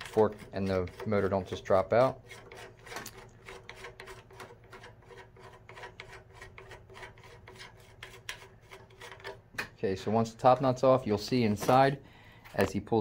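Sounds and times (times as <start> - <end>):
metallic clicks and thread scraping: 0.0 - 9.8.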